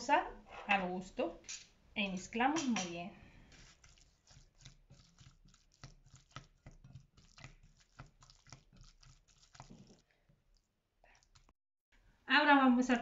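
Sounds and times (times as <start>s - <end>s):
spatula stirring mash in glass bowl: 2.6s - 11.6s.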